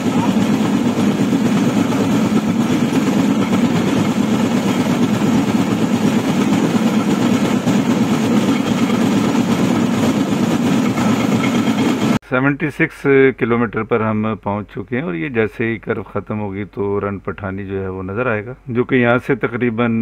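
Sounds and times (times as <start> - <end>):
motor trolley engine drone: 0.0 - 12.2
wheels rumbling on rails: 0.0 - 12.2.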